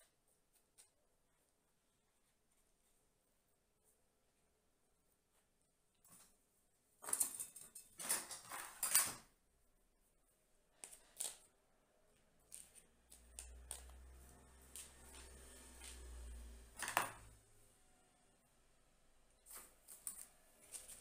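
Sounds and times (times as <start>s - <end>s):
faint low hum: 9.3s - 21.0s.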